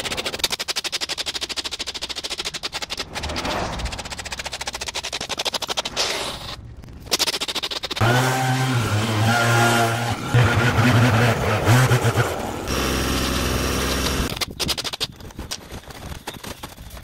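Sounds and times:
leaf blower revving: 0:08.0 - 0:14.3
low engine drone: 0:10.2 - 0:14.3.

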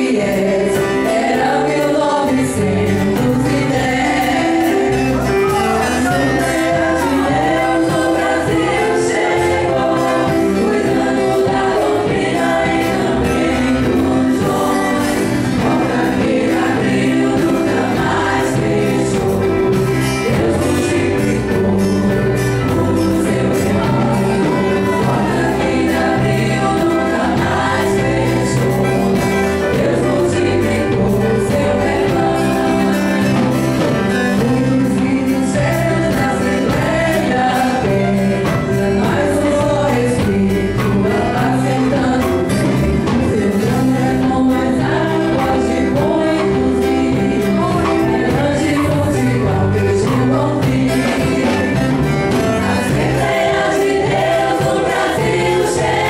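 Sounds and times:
band with steady drum beat: 0:00.0 - 0:56.0
choir singing a hymn: 0:00.0 - 0:56.0.

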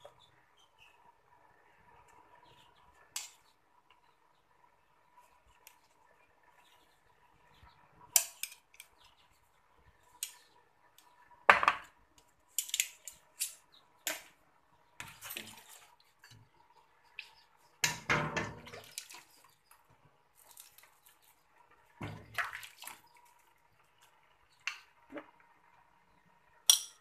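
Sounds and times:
broth pouring and splashing: 0:21.9 - 0:23.5
metal ladle clinking on bowl and pot: 0:26.7 - 0:27.0.

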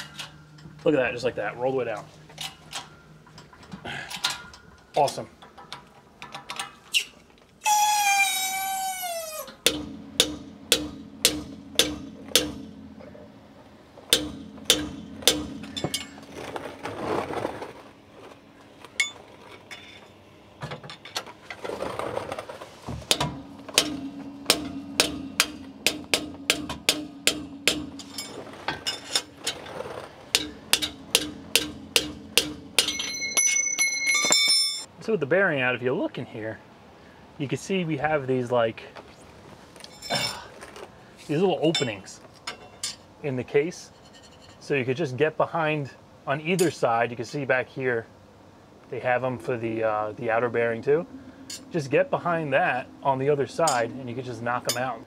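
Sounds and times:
short falling squeal: 0:06.9 - 0:09.5
hammer blows on steel: 0:09.3 - 0:13.1.

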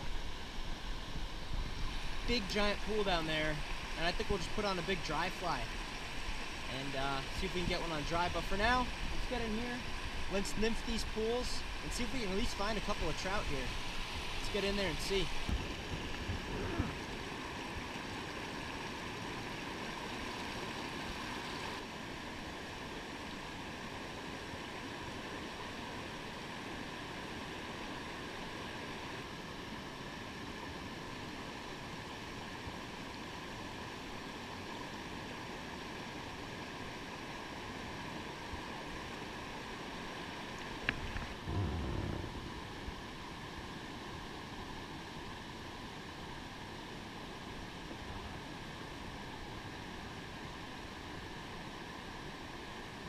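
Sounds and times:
creek running over rocks: 0:00.0 - 0:53.0
low bump: 0:41.4 - 0:42.8.

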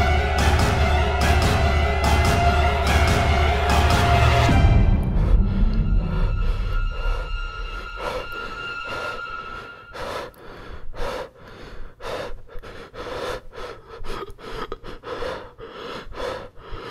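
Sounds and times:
background music held tones: 0:00.0 - 0:10.8
person panting: 0:04.9 - 0:16.9.

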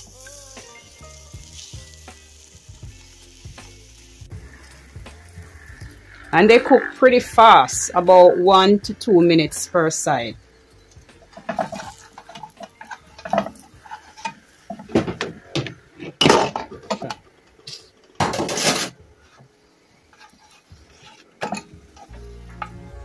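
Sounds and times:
background music: 0:00.0 - 0:23.0
utensils clattering on frying pan: 0:10.9 - 0:22.8
utensil scraping pan: 0:11.2 - 0:22.8.

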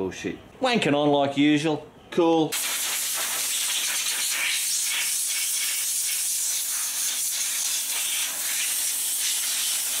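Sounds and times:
compressed air blow gun hissing: 0:02.6 - 0:10.0.

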